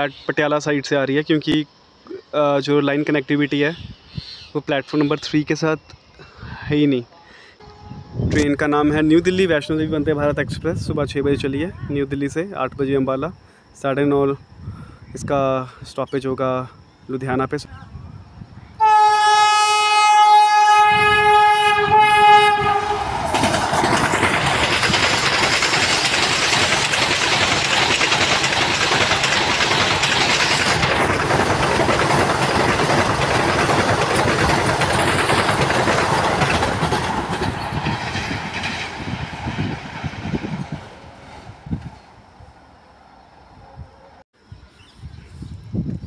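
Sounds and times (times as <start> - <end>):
train horn: 7.6 - 8.4, 18.8 - 23.3
train wheels rushing on rails: 20.6 - 42.5.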